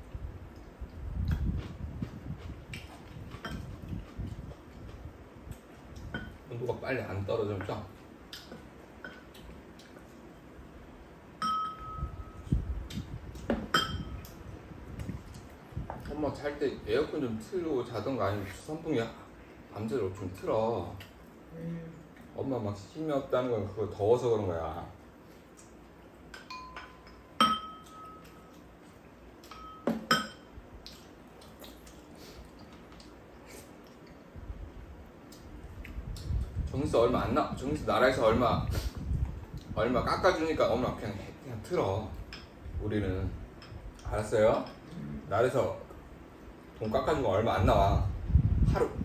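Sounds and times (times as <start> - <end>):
sharp ringing clink: 11.4 - 12.4
tableware clinking: 11.4 - 12.4, 13.6 - 14.2, 26.4 - 28.5, 29.5 - 30.5
utensil clinking on bowl: 11.4 - 12.4, 13.6 - 14.3, 26.3 - 28.5, 29.4 - 30.5.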